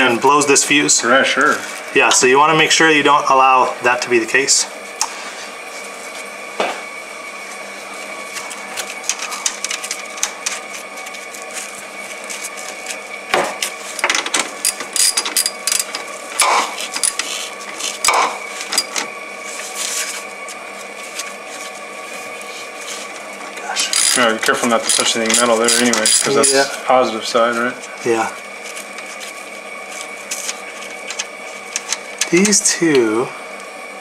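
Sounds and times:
steady hum: 0.0s - 34.0s.

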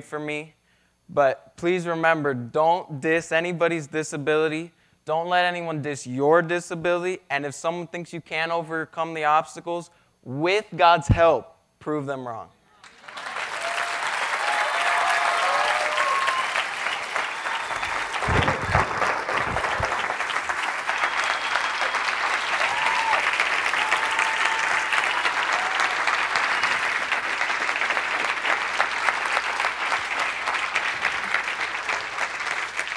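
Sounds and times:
audience applauding: 12.8s - 32.9s.

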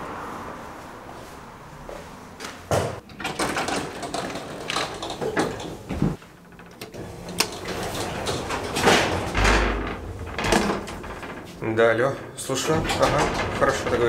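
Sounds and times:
elevator doors and mechanism: 2.8s - 14.0s
glass door knocking and clattering: 3.0s - 14.0s.

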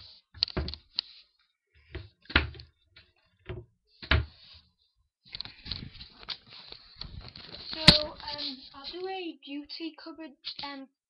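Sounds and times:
rustling: 4.4s - 9.1s.

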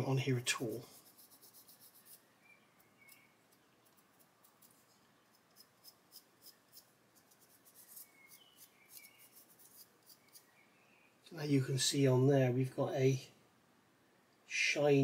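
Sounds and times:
fingertip scratching plastic: 0.9s - 2.2s, 3.0s - 10.5s.

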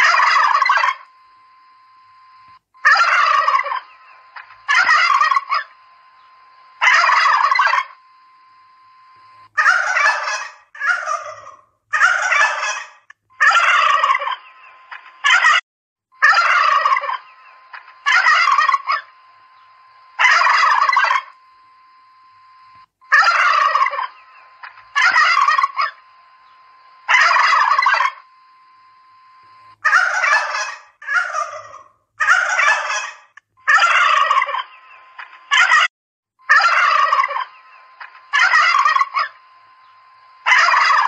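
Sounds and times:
turkeys gobbling: 0.0s - 1.0s, 2.8s - 5.8s, 6.8s - 8.0s, 9.6s - 15.6s, 16.2s - 19.1s, 20.2s - 21.3s, 23.1s - 26.0s, 27.1s - 28.2s, 29.8s - 35.9s, 36.5s - 39.4s, 40.5s - 41.0s
faint steady whine: 0.0s - 15.6s, 16.2s - 35.8s, 36.4s - 41.0s.

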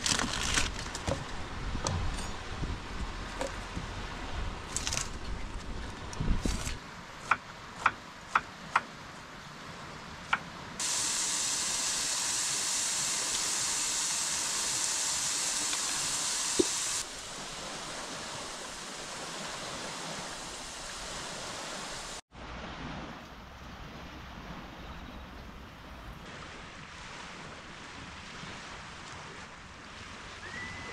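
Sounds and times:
loud steady hiss: 10.8s - 22.2s.

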